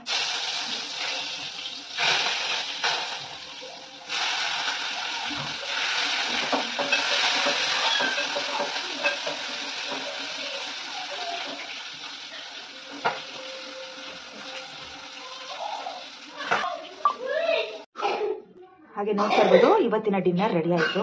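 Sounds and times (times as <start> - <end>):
food sizzling in a pan: 0.0 - 17.9
spatula scraping pan: 4.1 - 15.2.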